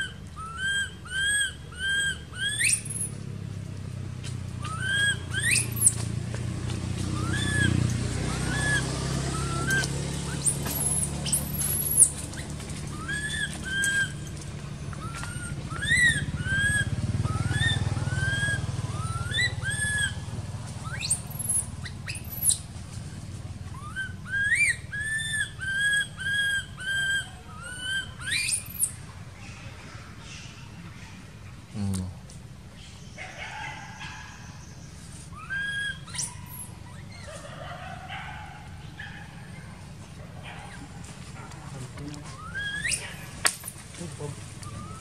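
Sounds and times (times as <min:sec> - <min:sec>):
infant monkey crying: 0:00.0 - 0:03.1, 0:04.7 - 0:06.0, 0:07.2 - 0:12.2, 0:12.9 - 0:14.3, 0:15.0 - 0:22.6, 0:23.8 - 0:29.0, 0:35.3 - 0:39.8, 0:42.2 - 0:43.4, 0:44.6 - 0:45.0.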